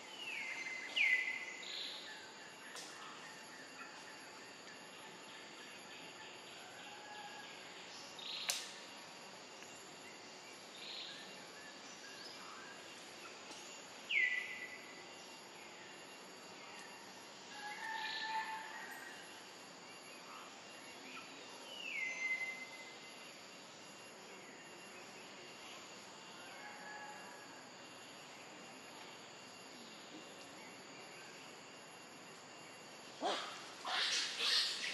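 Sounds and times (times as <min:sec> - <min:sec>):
steady forest hiss: 0:00.0 - 0:34.9
sharp click: 0:08.4 - 0:08.8
high bird calls: 0:33.2 - 0:34.9.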